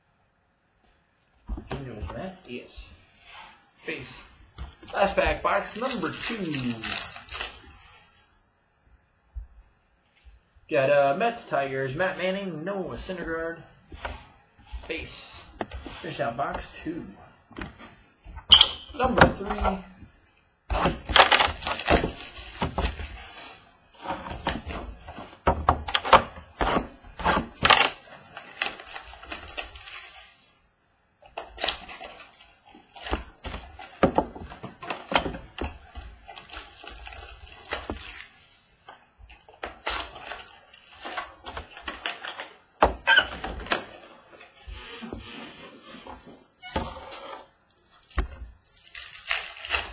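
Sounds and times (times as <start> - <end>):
packs crinkling: 4.8 - 8.3, 19.0 - 25.2, 26.8 - 30.6, 31.3 - 46.4, 47.8 - 49.9
cardboard box tearing: 5.5 - 8.0, 20.8 - 23.6, 48.0 - 49.9.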